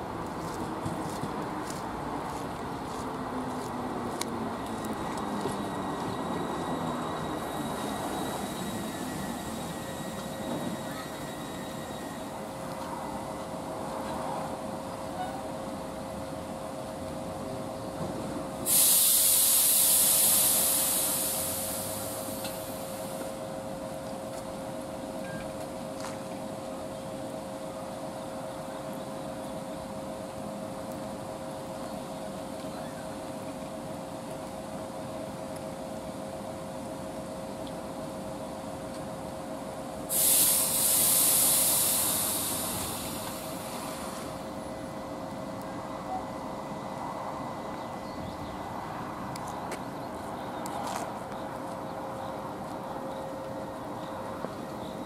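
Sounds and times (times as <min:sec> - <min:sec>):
train electrical hum: 0:00.0 - 0:55.0
compressed air hissing: 0:18.6 - 0:23.4, 0:40.1 - 0:44.5.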